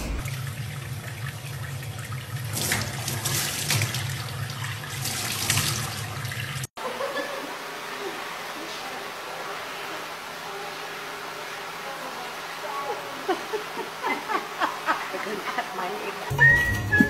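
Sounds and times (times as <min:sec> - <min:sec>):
tap water splashing into sink: 0:00.2 - 0:06.7.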